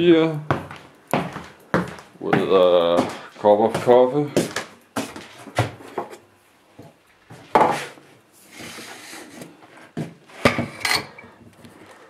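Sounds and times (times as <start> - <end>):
kitchen items knocking and clattering: 7.4 - 8.0, 10.0 - 11.4.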